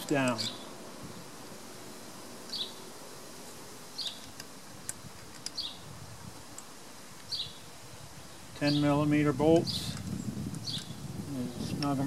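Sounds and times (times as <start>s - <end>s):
background hiss: 0.0s - 12.0s
small bird chirping: 2.5s - 2.8s, 4.0s - 4.3s, 5.4s - 5.9s, 7.2s - 9.0s, 9.6s - 11.9s.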